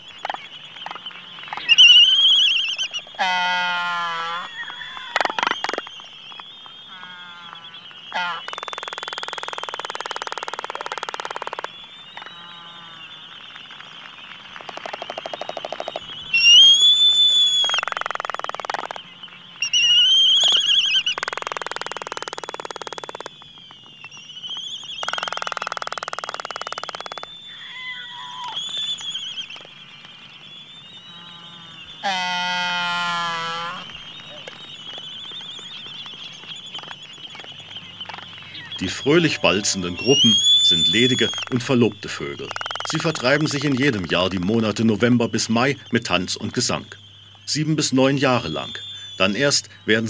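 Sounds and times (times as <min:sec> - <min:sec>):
albatross whistling calls: 0:00.9 - 0:13.1, 0:14.8 - 0:19.0, 0:19.6 - 0:23.2, 0:24.0 - 0:29.7, 0:30.9 - 0:50.0
albatross bill-clapping rattle: 0:13.4 - 0:16.1, 0:17.6 - 0:19.1.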